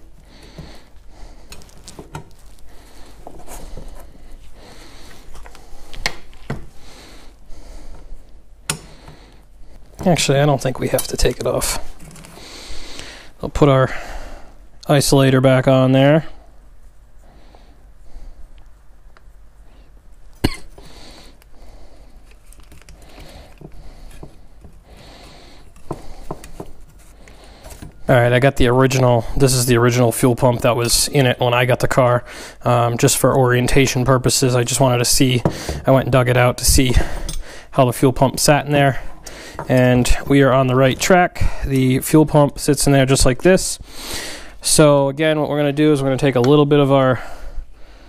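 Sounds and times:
rustling and scuffing of parts: 0:00.4 - 0:06.8, 0:08.9 - 0:12.4, 0:22.2 - 0:28.1.

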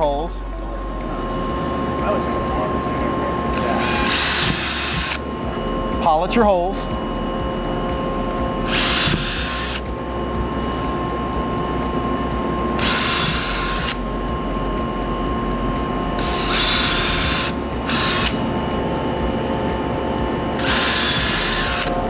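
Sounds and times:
drill bit cutting hiss: 0:03.5 - 0:05.2, 0:08.6 - 0:09.9, 0:12.8 - 0:14.0, 0:16.2 - 0:18.4, 0:20.6 - 0:22.0
cordless drill motor running: 0:03.5 - 0:06.2, 0:07.9 - 0:14.8, 0:16.0 - 0:19.4, 0:20.5 - 0:22.0.

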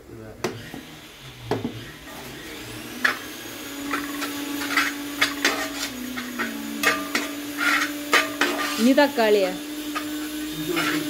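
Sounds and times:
spoon scraping cooking pan: 0:03.8 - 0:09.2, 0:09.8 - 0:11.0
steady low hum: 0:04.6 - 0:08.8.

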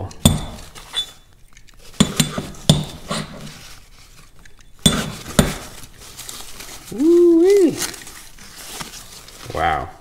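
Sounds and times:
paper and plastic rustling: 0:03.4 - 0:10.0.

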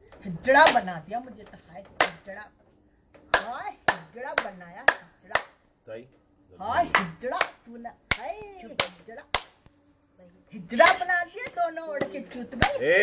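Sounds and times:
woman's voice: 0:00.0 - 0:02.6, 0:03.4 - 0:05.4, 0:06.7 - 0:09.4, 0:10.2 - 0:12.8
woman clapping hands: 0:02.0 - 0:02.3, 0:03.3 - 0:05.5, 0:06.9 - 0:09.6.

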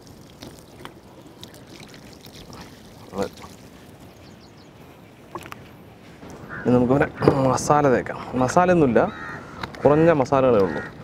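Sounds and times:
water pouring over turkey: 0:00.0 - 0:04.2.

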